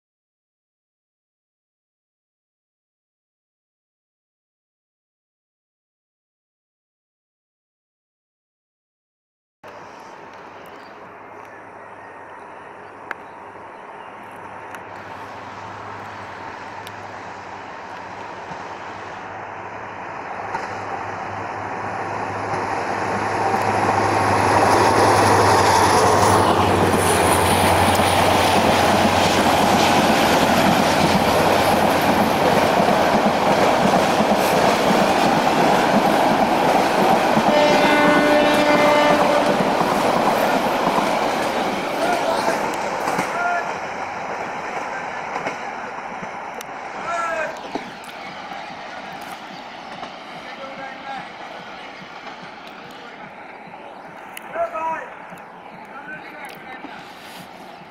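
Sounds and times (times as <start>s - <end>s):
diesel locomotive engine drone: 9.6s - 57.9s
train coaches rumbling on rails: 9.6s - 57.9s
train horn blast: 37.5s - 39.8s.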